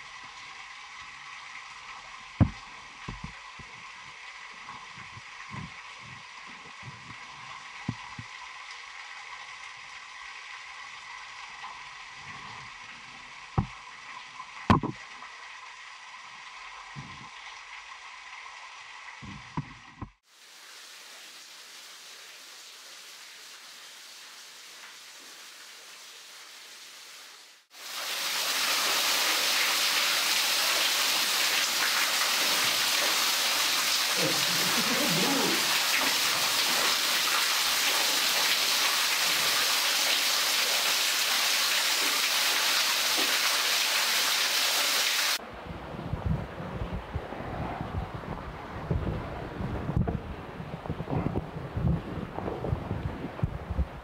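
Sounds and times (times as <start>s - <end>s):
running water hissing: 0.0s - 45.4s
waterfall splashing onto rock: 1.8s - 6.1s, 27.6s - 45.4s.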